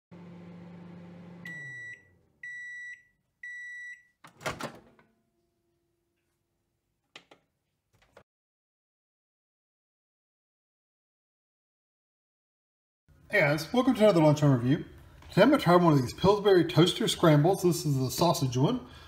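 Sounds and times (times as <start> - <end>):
microwave oven humming: 0.1 - 2.8
microwave beeps: 1.1 - 4.2.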